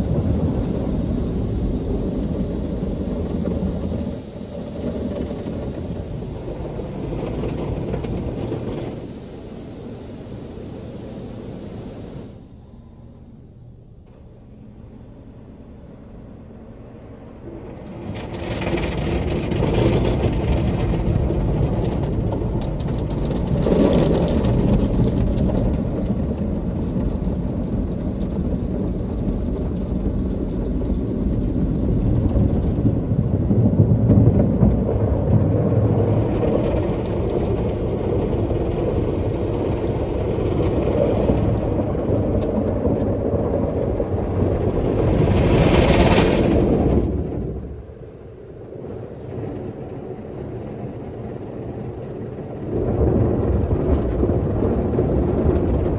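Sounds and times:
car wash brushes and spray: 0.0 - 27.9.

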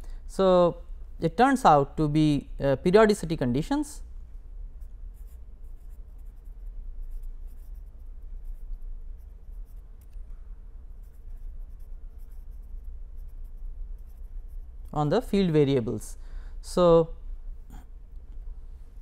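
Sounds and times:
steady low hum: 0.0 - 19.0
pen scratching on paper: 4.8 - 10.2, 10.9 - 14.9.

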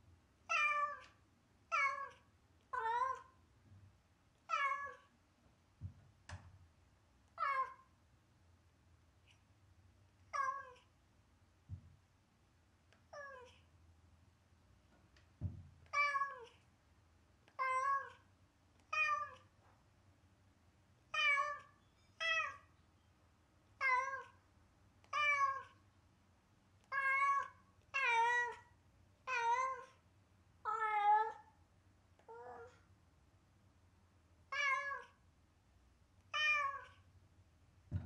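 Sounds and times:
cat meowing plaintively: 21.2 - 22.6, 30.7 - 31.5, 32.3 - 32.8, 34.5 - 35.2, 36.3 - 37.0.

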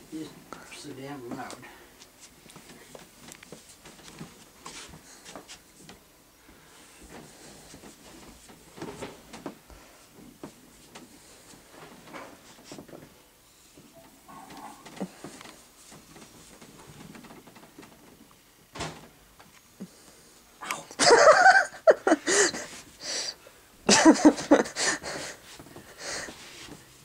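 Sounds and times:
cat hissing and growling: 20.6 - 21.0.

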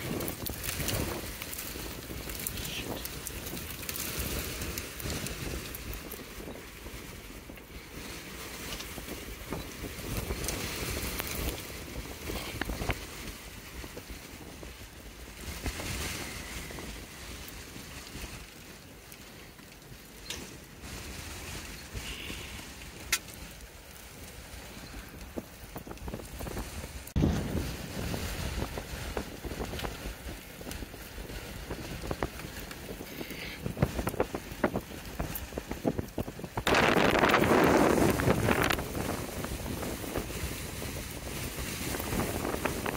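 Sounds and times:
wind buffeting microphone: 0.0 - 42.9.

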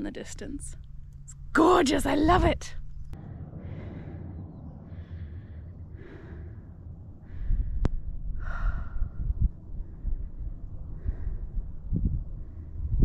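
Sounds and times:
low wind rumble: 0.0 - 13.0
woman breathing: 3.1 - 13.0.

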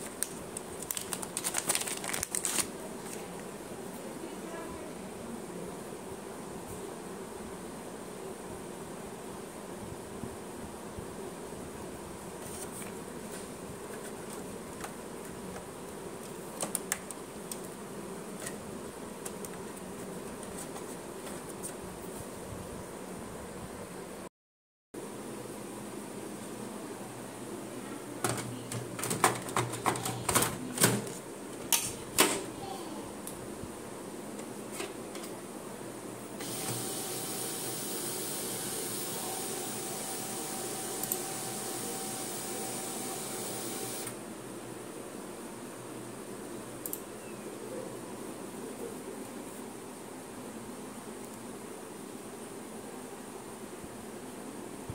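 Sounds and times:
paper clicking in tray: 0.0 - 3.2
printer motor and fan whirring: 28.2 - 32.5, 36.3 - 44.3.

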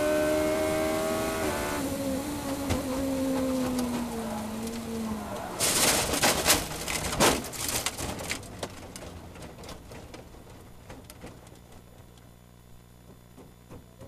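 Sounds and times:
race car engine slowing: 0.0 - 6.8.

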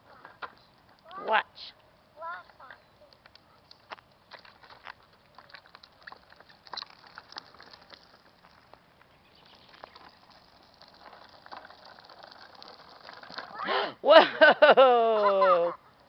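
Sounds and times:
tricycle wheels clicking on asphalt: 2.3 - 14.0.

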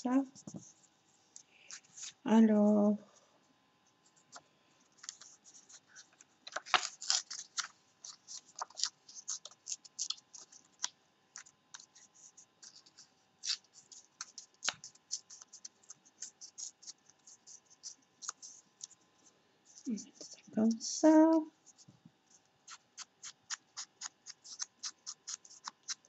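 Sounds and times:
paper rustling and tearing: 5.0 - 12.0, 12.6 - 18.5.

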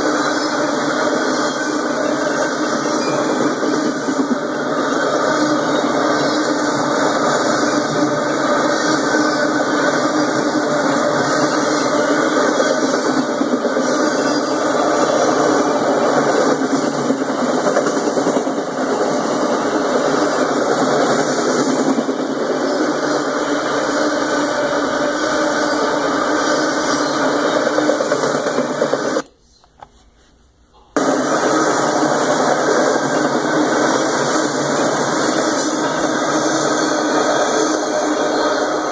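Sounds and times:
freight train wheels clattering: 0.0 - 29.2.

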